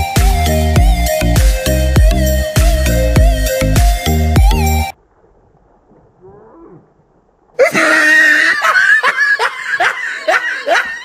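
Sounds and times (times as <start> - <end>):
electronic music: 0.0 - 5.0
loud laughter: 7.6 - 11.0.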